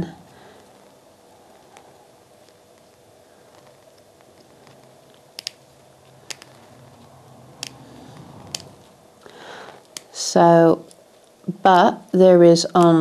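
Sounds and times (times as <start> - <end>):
small scissors snipping: 5.1 - 5.6.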